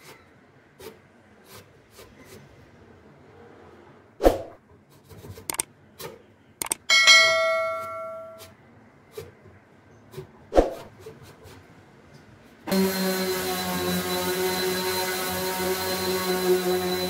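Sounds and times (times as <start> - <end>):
metallic clang of saw blade: 6.9 - 8.5
orbital sander running: 12.7 - 17.0.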